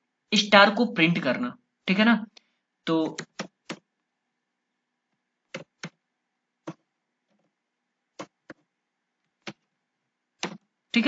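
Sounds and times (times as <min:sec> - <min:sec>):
computer keyboard key clicks: 0:03.1 - 0:03.8, 0:10.4 - 0:10.6.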